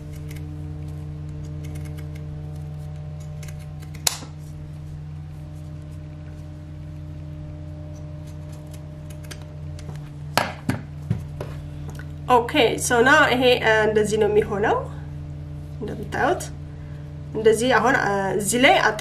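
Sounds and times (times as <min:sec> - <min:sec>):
scissors snipping leather: 0:00.0 - 0:00.5, 0:01.3 - 0:02.3, 0:03.2 - 0:04.3, 0:08.2 - 0:09.4
steady low hum: 0:00.0 - 0:19.0.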